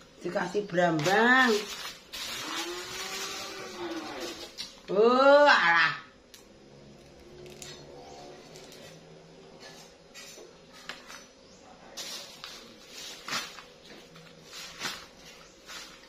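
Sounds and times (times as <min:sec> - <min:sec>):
dry shallot stalks rustling: 0:00.2 - 0:04.8, 0:11.9 - 0:16.0.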